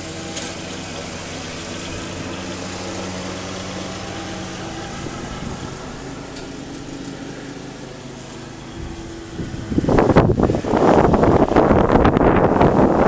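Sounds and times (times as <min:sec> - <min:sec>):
riding lawn mower engine running: 0:00.0 - 0:13.0
wind hitting microphone: 0:08.6 - 0:13.0.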